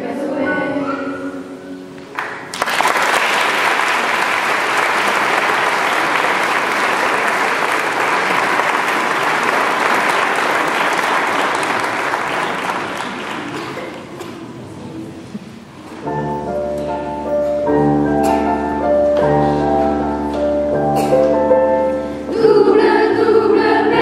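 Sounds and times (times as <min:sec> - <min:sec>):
audience applauding: 0:02.2 - 0:14.3.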